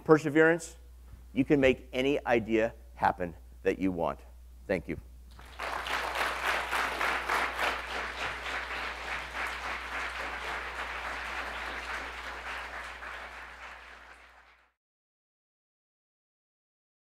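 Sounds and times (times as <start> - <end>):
audience applauding: 5.3 - 14.7.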